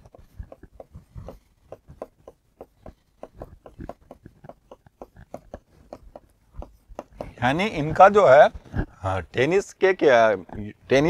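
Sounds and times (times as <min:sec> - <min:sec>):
stylus tapping on display board: 0:00.0 - 0:07.8.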